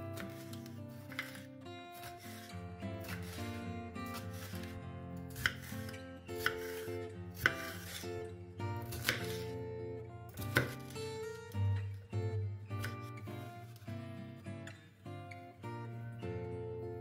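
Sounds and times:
guitar background music: 0.0s - 17.0s
knife striking cutting board: 1.1s - 1.4s, 4.1s - 4.7s, 5.4s - 5.8s, 6.4s - 6.8s, 7.4s - 8.0s, 8.9s - 9.5s, 10.4s - 11.0s.

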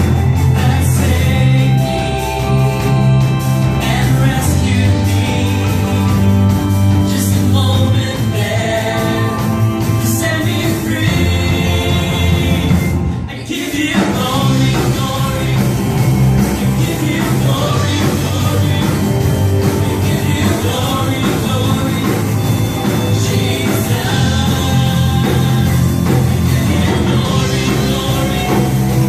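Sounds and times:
band playing worship song: 0.0s - 29.0s
women singing: 7.8s - 29.0s.

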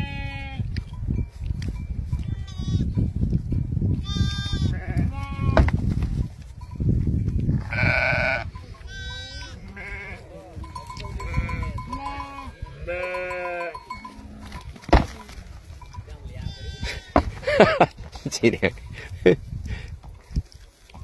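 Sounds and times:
sheep bleating: 2.2s - 2.9s, 4.0s - 5.6s, 7.6s - 14.6s, 16.4s - 17.2s.

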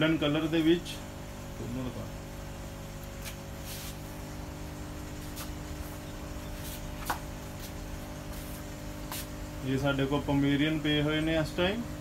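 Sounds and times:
low mechanical hum: 0.0s - 12.0s
short soft hisses: 3.2s - 4.2s, 7.6s - 9.4s.

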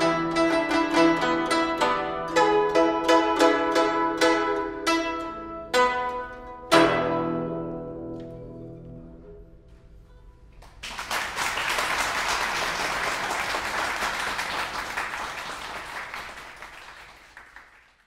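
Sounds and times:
guzheng chord ringing: 0.0s - 9.4s
audience applause: 10.6s - 18.0s.

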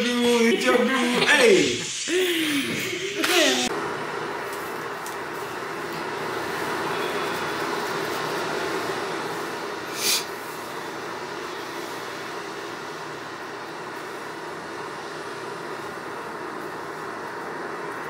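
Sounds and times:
sound machine ocean waves: 2.8s - 18.0s
short sharp hiss: 9.9s - 10.4s.

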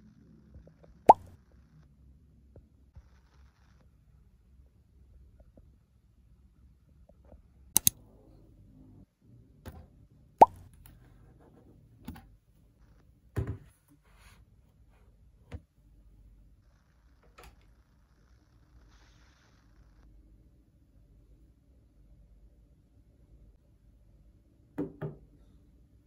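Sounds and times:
objects tapping on a desk: 24.8s - 25.3s.

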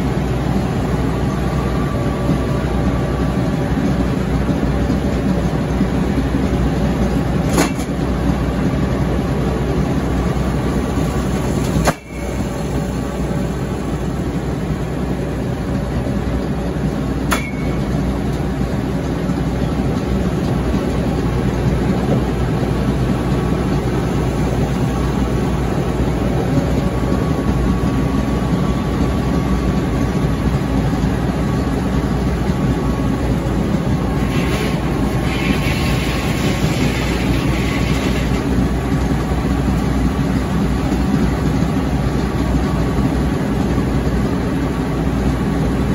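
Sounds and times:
engine running steadily: 0.0s - 45.9s
circular saw cutting log: 34.1s - 38.6s.

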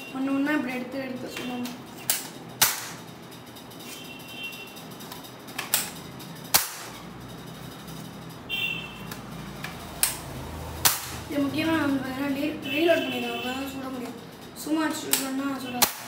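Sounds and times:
toy blaster sharp snaps: 2.1s - 3.0s, 6.5s - 7.0s, 10.8s - 11.2s, 15.1s - 16.0s.

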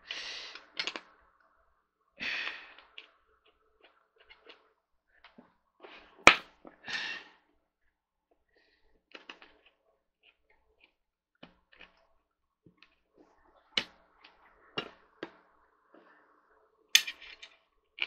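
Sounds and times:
metal bolts clicking and tapping: 17.0s - 17.2s.

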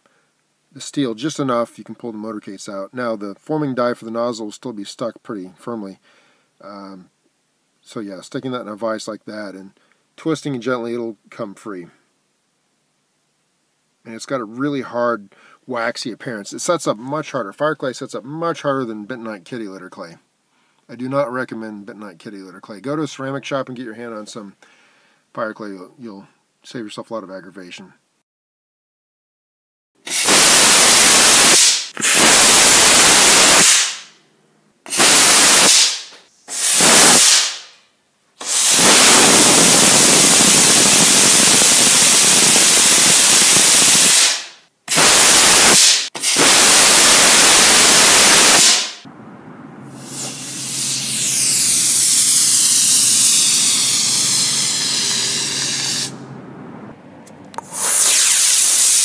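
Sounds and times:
rocket motor hissing: 30.1s - 34.1s, 34.9s - 37.7s, 38.4s - 49.1s, 50.0s - 56.2s, 57.6s - 59.0s.

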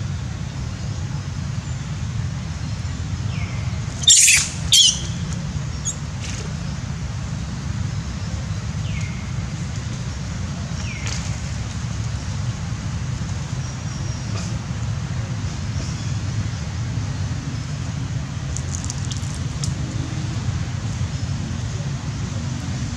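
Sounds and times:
shrill animal calls: 4.0s - 5.2s
steady low rumble: 17.2s - 22.9s.

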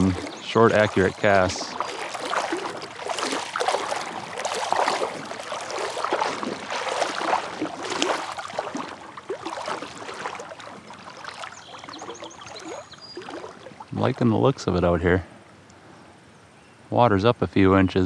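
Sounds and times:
water splashing around legs: 0.0s - 14.3s.

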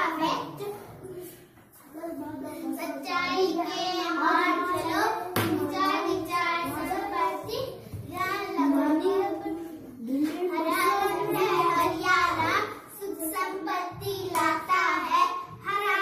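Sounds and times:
girls singing together: 10.2s - 16.0s.

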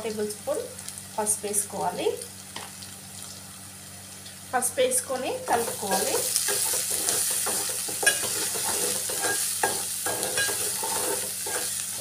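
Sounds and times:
onions sizzling in oil: 0.0s - 12.0s
steel spoon scraping pot: 5.9s - 12.0s.

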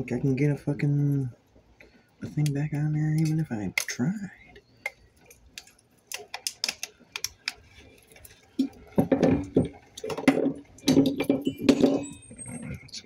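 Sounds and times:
clatter of knocks on wooden board: 9.0s - 12.1s.

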